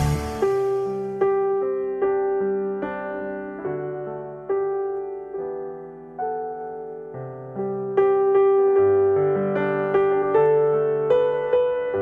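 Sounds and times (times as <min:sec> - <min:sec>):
bass line: 0:00.0 - 0:01.0
slow keyboard chords: 0:00.0 - 0:11.9.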